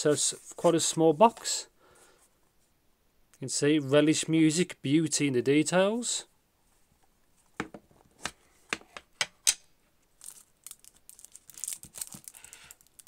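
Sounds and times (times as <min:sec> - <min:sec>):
plastic wrap crinkle: 0:10.2 - 0:13.0.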